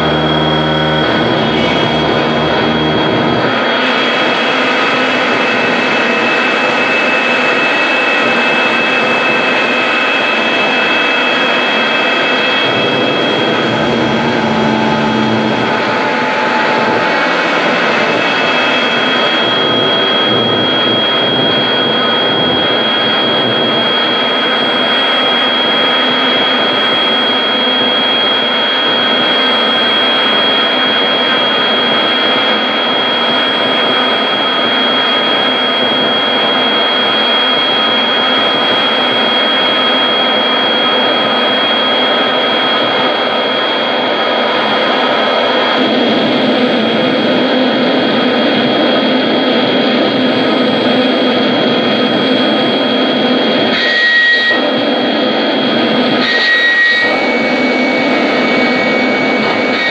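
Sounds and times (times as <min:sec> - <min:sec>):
dense wall of noise music: 0:00.0 - 0:06.1, 0:11.6 - 0:20.1
sustained high tones: 0:00.0 - 0:26.4.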